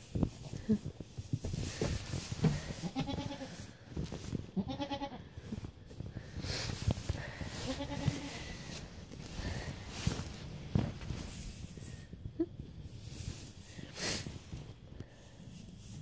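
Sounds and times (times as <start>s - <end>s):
knocks and rustling in hay: 0.0s - 12.1s, 12.8s - 16.0s
goats bleating: 2.8s - 3.6s, 4.6s - 5.3s, 7.6s - 8.5s.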